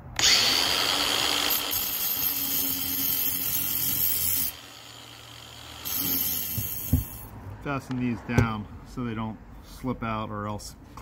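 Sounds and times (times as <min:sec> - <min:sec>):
angle grinder cutting brick: 0:00.2 - 0:07.3.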